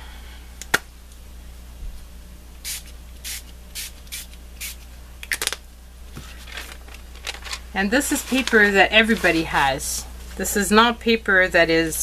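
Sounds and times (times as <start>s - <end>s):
spray bottle hissing: 2.6s - 4.8s.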